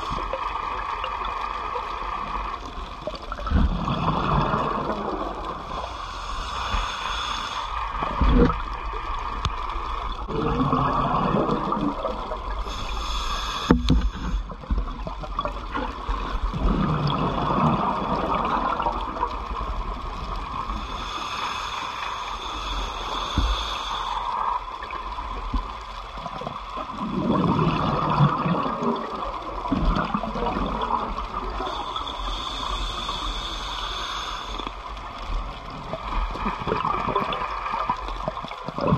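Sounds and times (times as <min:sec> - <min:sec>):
regulator hissing inhale: 0:05.6 - 0:08.0, 0:12.5 - 0:14.6, 0:20.7 - 0:24.8, 0:31.4 - 0:35.3
gurgling exhaust bubbles: 0:10.2 - 0:12.7, 0:26.9 - 0:31.6.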